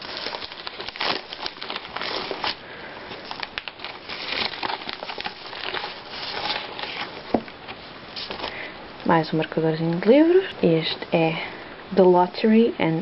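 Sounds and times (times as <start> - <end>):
padded mailer crinkling: 0.0 - 8.7.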